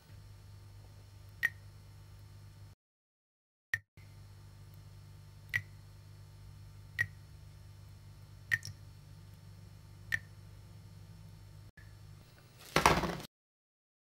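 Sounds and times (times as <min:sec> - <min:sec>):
faint low hum: 0:04.0 - 0:12.6
water dripping into metal sink: 0:08.5 - 0:08.8.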